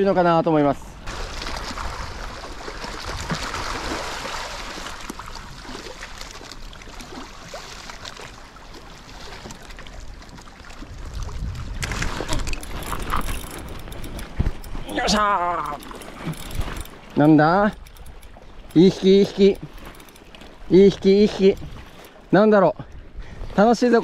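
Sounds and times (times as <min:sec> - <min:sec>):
water lapping and sloshing: 0:00.0 - 0:24.0
wind rumble on microphone: 0:09.9 - 0:17.0.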